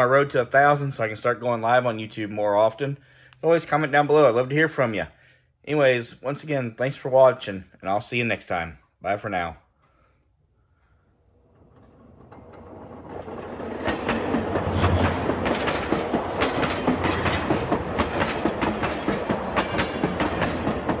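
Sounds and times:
model train rumbling: 0:10.7 - 0:21.0
wheels clicking over rail joints: 0:11.4 - 0:21.0.

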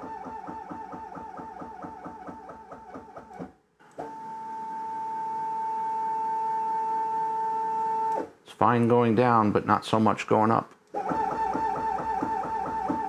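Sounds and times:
motor clunking and wavering: 0:11.0 - 0:13.0.

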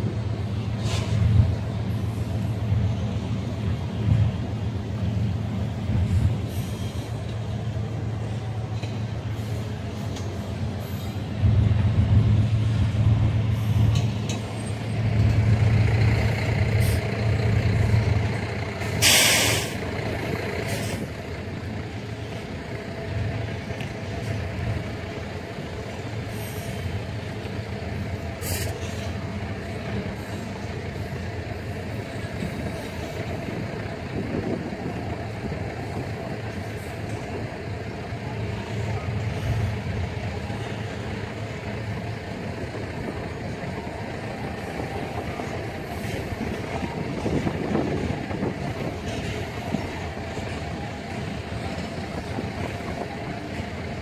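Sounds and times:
train wheels rumbling on rails: 0:00.0 - 0:54.0
loud hiss: 0:18.8 - 0:20.0.

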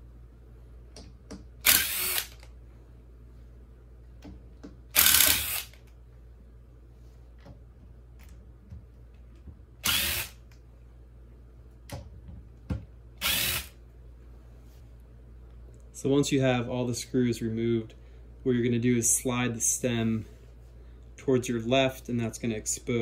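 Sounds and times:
cordless drill spinning: 0:01.6 - 0:02.5, 0:04.9 - 0:05.8, 0:09.8 - 0:10.4, 0:13.2 - 0:13.8.

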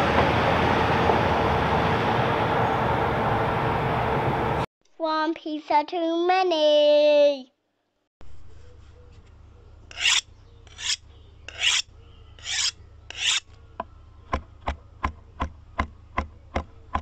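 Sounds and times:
rasping scraping strokes: 0:09.9 - 0:13.6.

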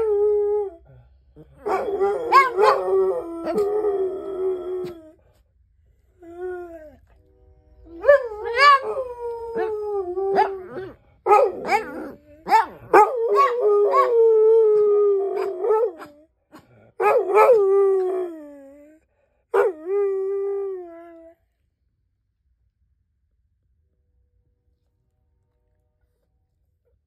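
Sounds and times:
hound dog howling: 0:01.6 - 0:05.2, 0:07.9 - 0:12.2, 0:12.9 - 0:16.2.

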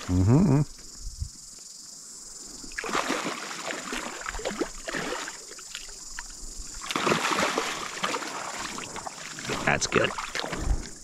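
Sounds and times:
fish splashing in water: 0:02.7 - 0:11.0.

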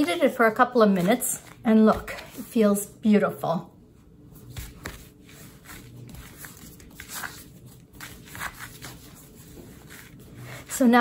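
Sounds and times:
hands kneading dough: 0:04.2 - 0:11.0.

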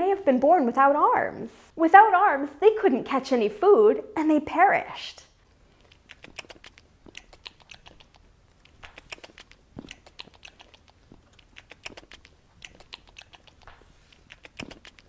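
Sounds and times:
person chewing crunchy food: 0:05.8 - 0:15.0.

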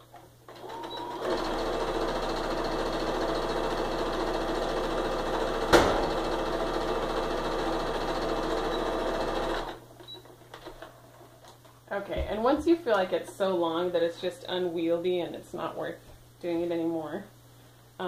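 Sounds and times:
sewing machine running: 0:00.5 - 0:09.8.

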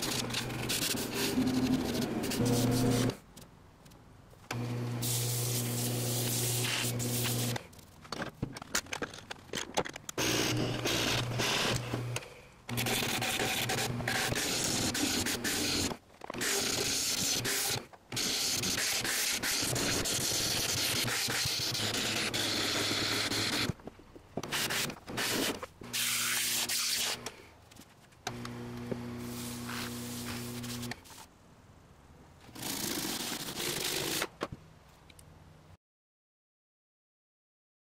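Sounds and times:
sandpaper and gouge hissing on resin: 0:05.0 - 0:07.5, 0:26.0 - 0:27.2, 0:29.3 - 0:31.2.

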